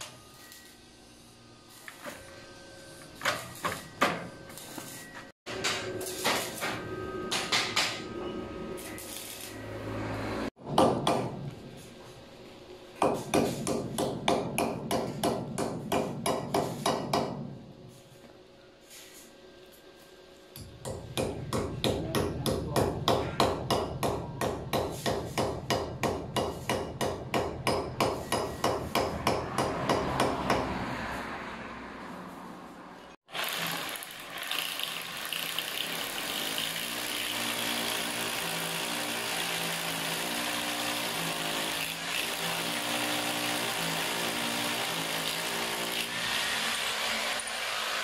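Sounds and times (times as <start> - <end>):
hammer striking concrete: 10.6 - 11.5, 13.0 - 17.6, 20.6 - 30.8
electric drill boring into concrete: 33.3 - 48.0.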